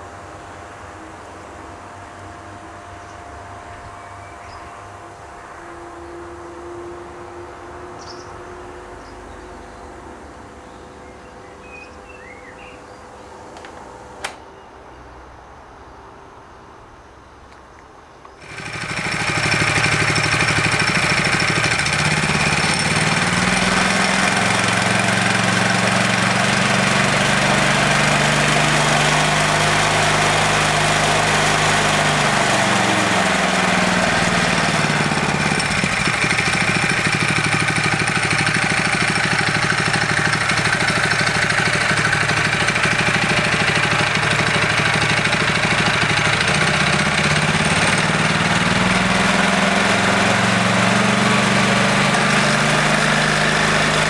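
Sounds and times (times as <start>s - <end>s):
small engine revving and idling: 18.4s - 54.0s.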